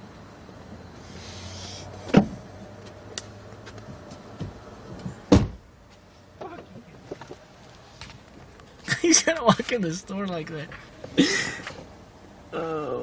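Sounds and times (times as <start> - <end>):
heavy thumps: 3.8 - 5.7.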